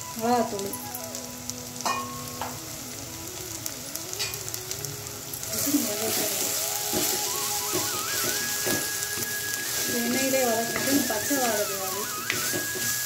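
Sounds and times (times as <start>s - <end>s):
onions sizzling in hot oil: 0.0s - 13.0s.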